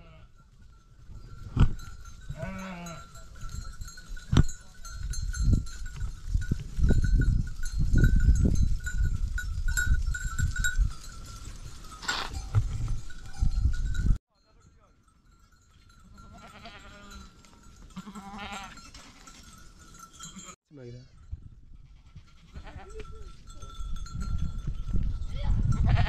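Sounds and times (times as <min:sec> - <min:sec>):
small bell tinkling: 0:00.4 - 0:21.6, 0:22.7 - 0:26.0
sheep bleating: 0:02.3 - 0:03.1, 0:16.2 - 0:17.3, 0:18.0 - 0:19.4, 0:21.9 - 0:23.0.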